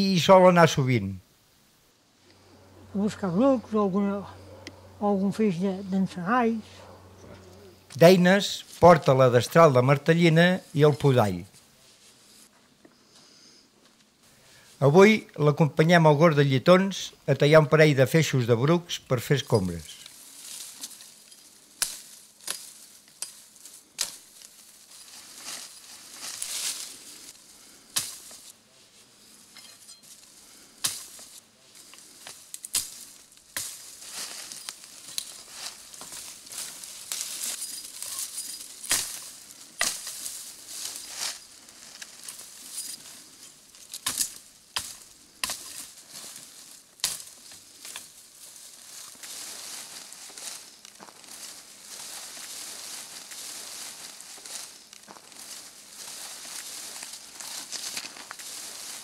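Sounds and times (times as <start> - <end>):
branches and leaves rustling: 0.0 - 59.0
stems snapping and cracking: 20.0 - 24.6, 30.8 - 42.6, 43.4 - 59.0.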